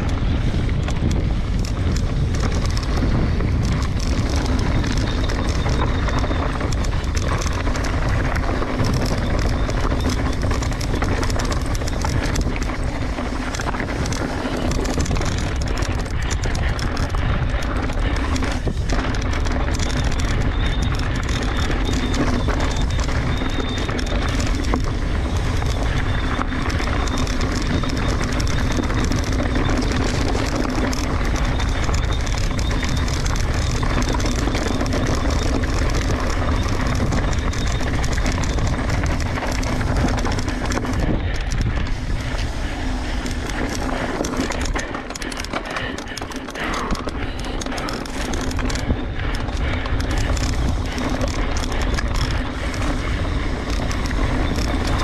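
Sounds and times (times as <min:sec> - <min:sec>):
bike clattering over bumps: 0:00.0 - 0:55.0
tyres crunching over gravel: 0:00.0 - 0:55.0.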